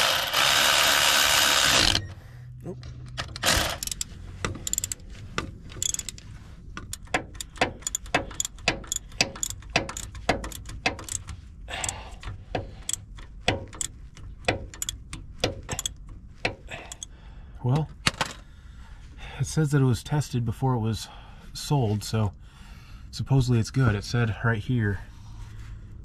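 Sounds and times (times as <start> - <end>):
socket ratchet clicking: 3.2 - 17.1.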